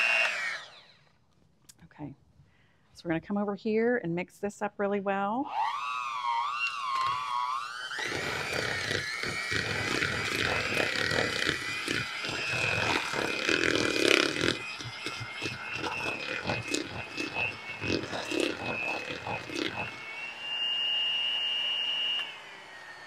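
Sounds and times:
electric hand mixer whine: 0.0 - 1.1, 5.5 - 23.0
beaters knocking and scraping bowl: 8.0 - 20.0.

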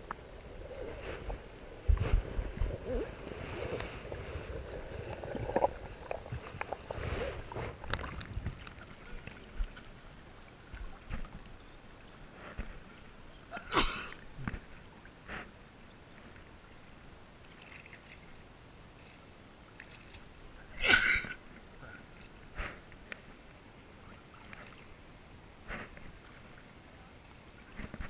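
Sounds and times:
water splashes: 0.0 - 15.2, 17.4 - 18.4, 19.1 - 28.0
water lapping against camera housing: 1.1 - 9.9.

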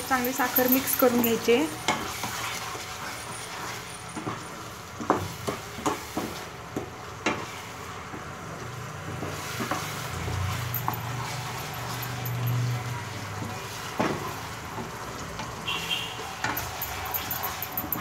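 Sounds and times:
soft sizzle in pan: 0.0 - 17.5.

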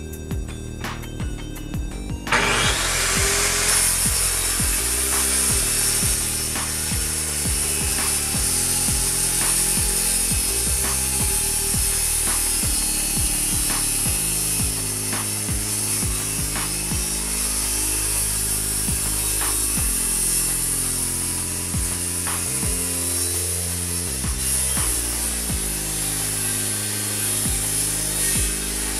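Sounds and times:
background music: 0.0 - 28.9
circular saw cutting countertop: 2.3 - 28.9.

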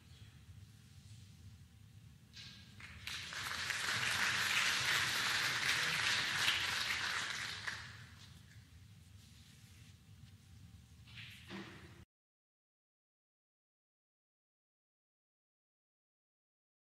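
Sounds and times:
audience applauding: 2.8 - 8.0.

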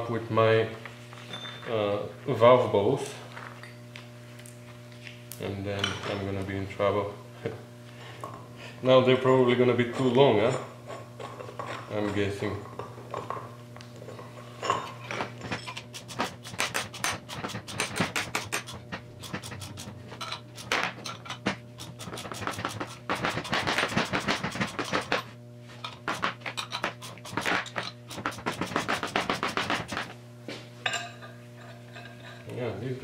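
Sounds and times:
steady electrical hum: 0.0 - 33.0.

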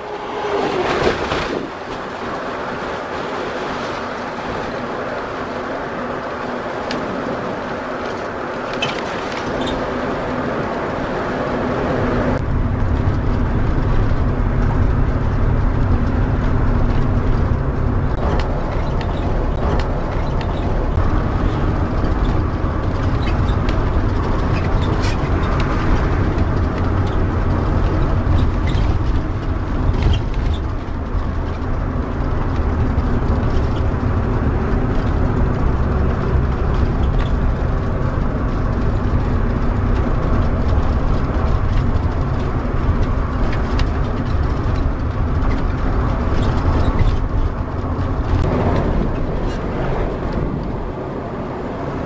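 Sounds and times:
engine and road noise: 0.0 - 52.0.

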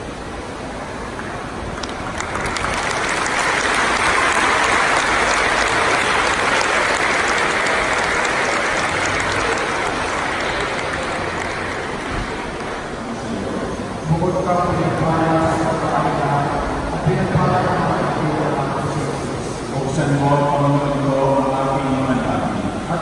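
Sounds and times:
small group applauding: 1.2 - 13.3.

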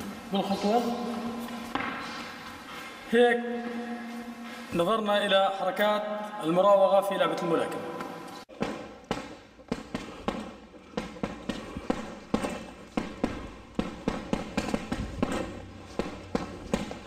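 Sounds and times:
dull thuds: 8.5 - 17.0.

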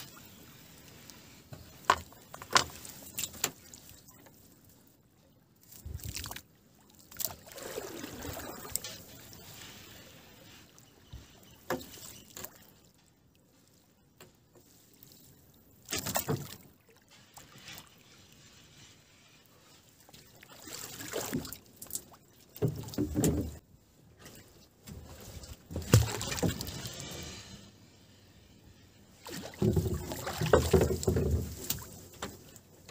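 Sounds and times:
wet fishing net rustling: 0.0 - 4.8, 5.6 - 12.9, 14.6 - 27.6, 29.0 - 32.9
knocks against wooden hull: 29.4 - 32.4.

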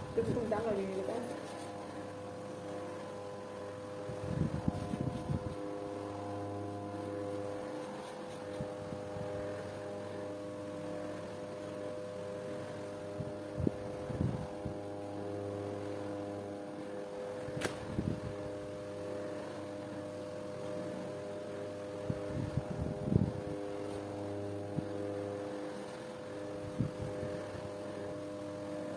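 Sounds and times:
steady machine hum: 0.0 - 28.9
sharp click: 17.6 - 17.8.

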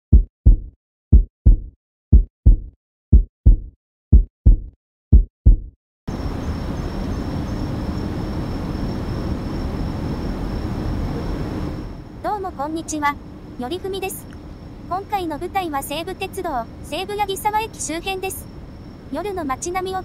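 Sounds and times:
heartbeat thumps: 0.1 - 5.8
road noise: 6.1 - 19.2
faint high whine: 6.1 - 20.0.

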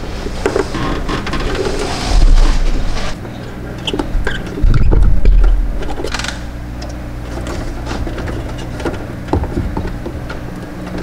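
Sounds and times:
low electrical hum: 0.0 - 11.0
loud low rumble: 1.9 - 3.2.

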